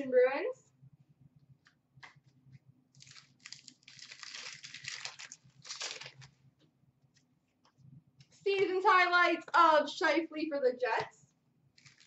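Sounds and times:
wrapper tearing and crinkling: 3.0 - 6.3, 11.8 - 12.0.

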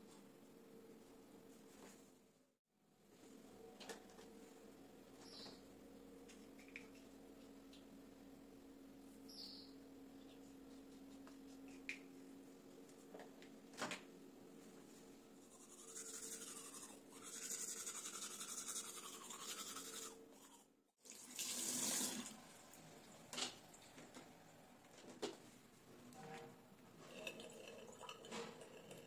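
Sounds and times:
toothbrush scrubbing teeth: 15.4 - 20.7
water rushing in sink: 21.0 - 23.8.

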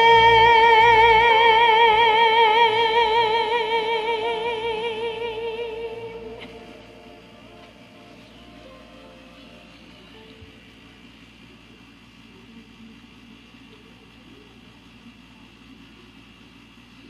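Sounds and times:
woman singing with vibrato: 0.0 - 8.5
karaoke backing track: 0.0 - 10.6.

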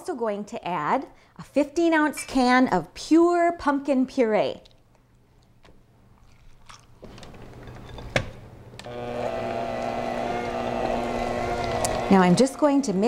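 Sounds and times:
electric hand mixer running: 8.8 - 13.0.

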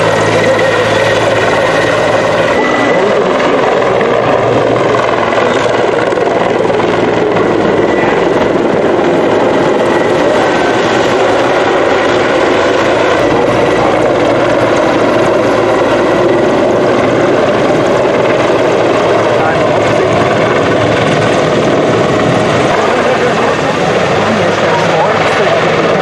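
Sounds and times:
helicopter flying low past: 0.0 - 26.0
high turbine whine: 0.0 - 26.0.

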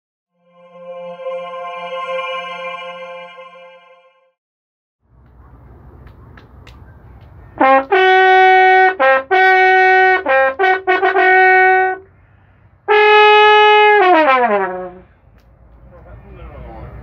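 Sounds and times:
horn long note sliding down: 0.4 - 4.4
brass horn blasts: 7.6 - 12.1, 12.9 - 15.1.

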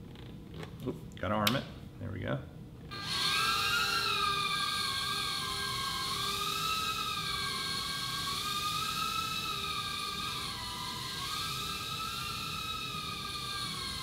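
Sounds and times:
quadcopter motors whining: 2.9 - 14.0.

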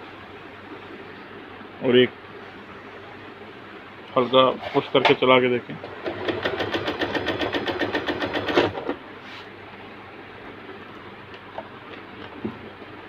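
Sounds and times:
sewing machine clicking: 5.8 - 9.0.

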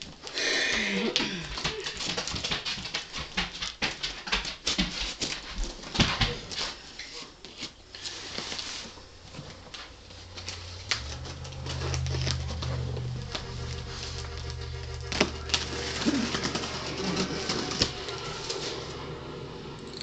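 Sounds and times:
low steady hum: 9.1 - 20.0
packing tape peeling and crackling: 10.3 - 19.0.

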